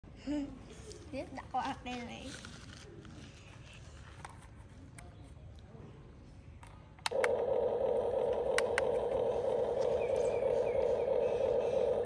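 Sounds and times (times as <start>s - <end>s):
sharp clicks: 6.6s - 12.0s
toy excavator buzzing drone: 7.1s - 12.0s.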